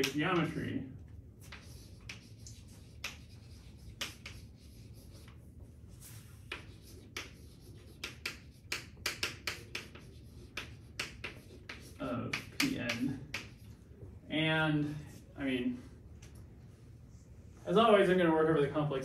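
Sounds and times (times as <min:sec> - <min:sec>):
chalk writing on chalkboard: 0:01.4 - 0:13.8.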